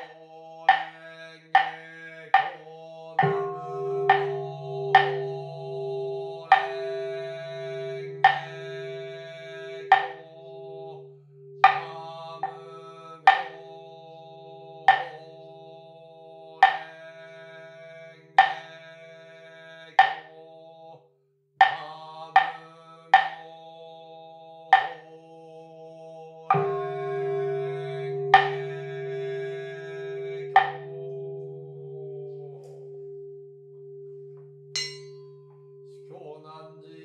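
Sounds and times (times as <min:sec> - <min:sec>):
ringing percussion strokes: 0:03.2 - 0:15.6, 0:16.6 - 0:19.0, 0:26.5 - 0:37.0
low pulsing drone: 0:03.2 - 0:19.4, 0:26.6 - 0:33.7.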